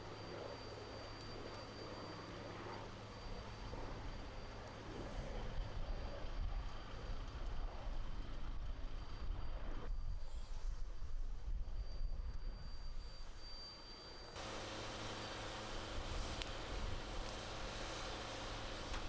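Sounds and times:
faint constant hum: 10.7 - 19.0
low outdoor rumble: 14.4 - 19.0.

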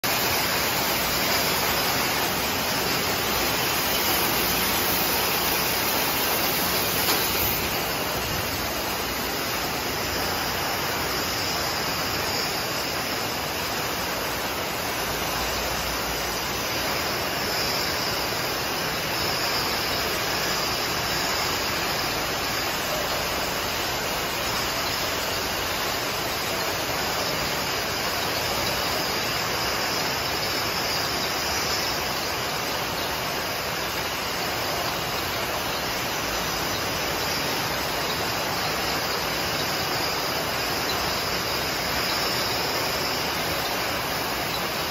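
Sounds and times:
bottling machinery din: 0.0 - 10.3
constant hiss: 0.0 - 44.9.

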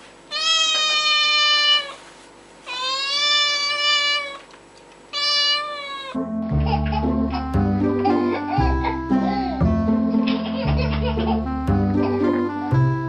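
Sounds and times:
young cat meowing: 0.3 - 2.0, 2.7 - 4.5, 5.1 - 6.2.

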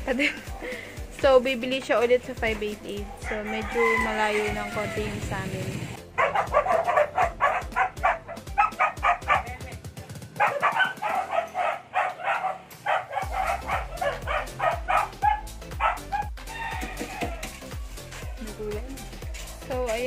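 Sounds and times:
background music with steady beat: 0.0 - 20.0
dog yapping: 6.2 - 9.6, 10.4 - 16.4.

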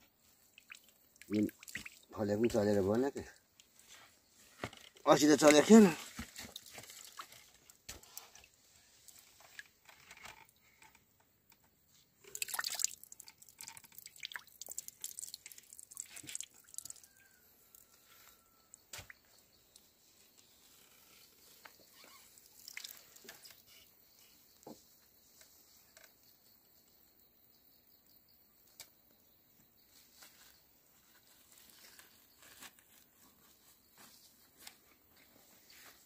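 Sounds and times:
liquid dripping into pool: 0.5 - 2.6, 12.2 - 17.9, 22.4 - 23.3
water splashing: 0.5 - 2.6, 12.2 - 16.7.

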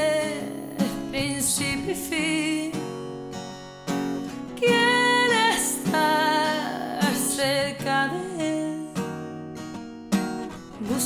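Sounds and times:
woman singing: 0.0 - 3.1, 4.4 - 9.4, 10.7 - 11.0
acoustic guitar: 0.0 - 11.0.

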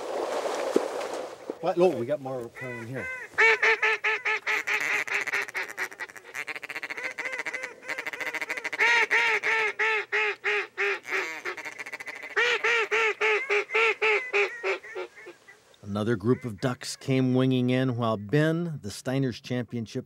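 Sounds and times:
duck call quacking: 2.5 - 17.3.

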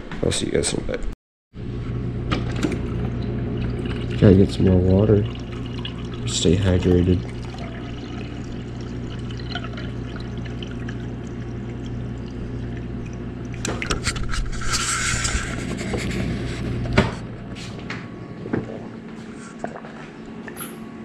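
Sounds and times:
refrigerator hum: 1.6 - 21.0
water pouring into glass: 3.1 - 13.6.

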